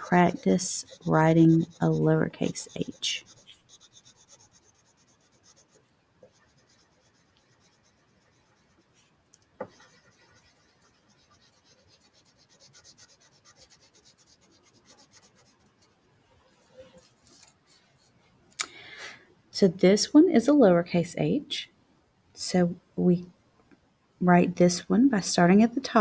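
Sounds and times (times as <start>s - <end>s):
crayon rubbing on paper: 0.0s - 9.0s, 9.6s - 15.9s.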